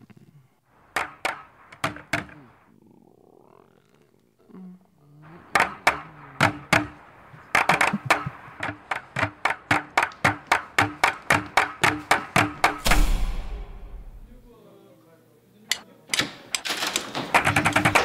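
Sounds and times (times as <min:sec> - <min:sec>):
running footsteps on hard floor: 0:07.6 - 0:12.8.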